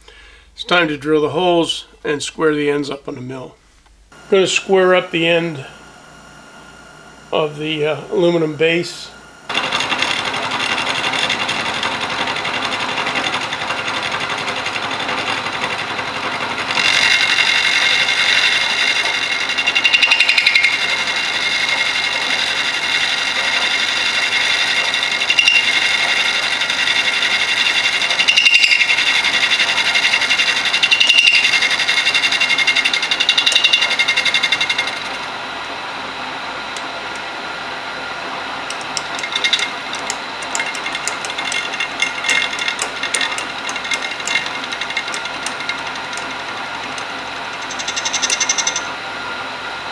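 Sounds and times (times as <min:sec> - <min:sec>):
milling machine cutting metal: 0:09.5 - 0:35.8, 0:38.5 - 0:49.0
high ringing whine: 0:16.8 - 0:35.8, 0:36.5 - 0:49.8.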